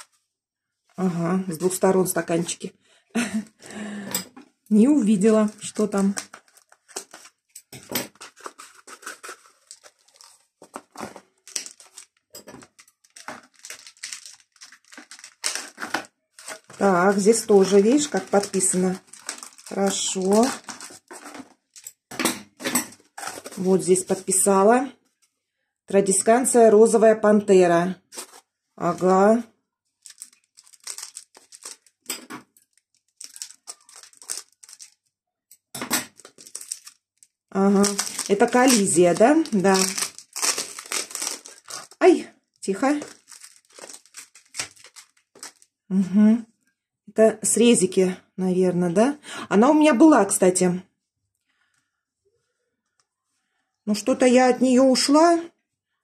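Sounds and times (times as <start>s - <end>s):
paper and plastic cup crinkling: 4.9s - 22.0s, 22.6s - 24.5s, 28.1s - 29.4s, 30.0s - 35.1s, 36.0s - 45.7s.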